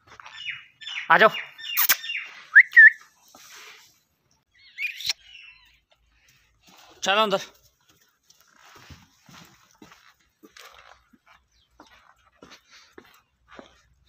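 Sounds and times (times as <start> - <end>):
man whistling to call a dog: 2.5 - 3.0.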